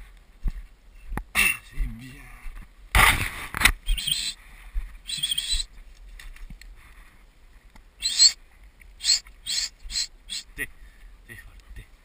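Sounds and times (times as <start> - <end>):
dry grass rustling against legs: 2.4 - 10.6.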